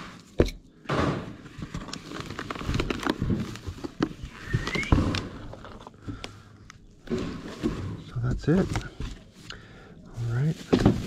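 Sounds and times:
packaging crinkling and rustling: 1.4s - 9.5s
rising squeak: 4.4s - 5.0s.

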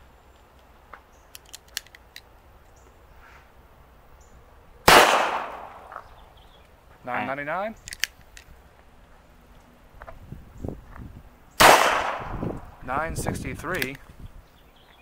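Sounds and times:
revolver gunshot with echo: 4.9s - 5.9s, 11.6s - 12.4s.

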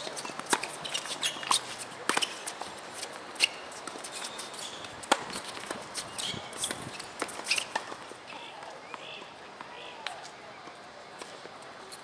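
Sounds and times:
racket striking tennis ball: 3.4s - 8.5s.

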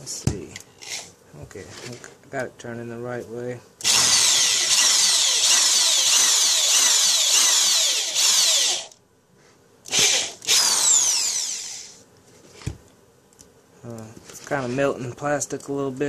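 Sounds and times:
drill bit squealing through plastic: 3.8s - 9.0s, 9.9s - 12.0s.

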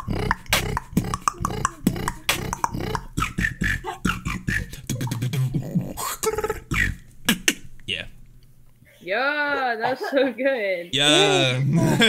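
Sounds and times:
held vocal tone: 0.0s - 8.1s, 10.9s - 12.0s
man beatboxing: 0.0s - 8.1s.

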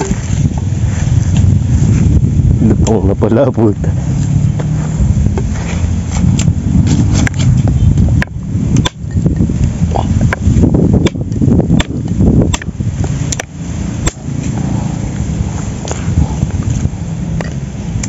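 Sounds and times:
wind rumble on microphone: 0.0s - 18.0s
knife chopping wooden stick: 11.0s - 12.7s.

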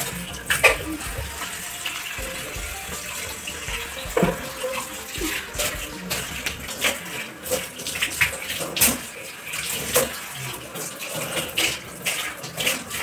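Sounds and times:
scrubbing sink basin: 0.0s - 10.2s.

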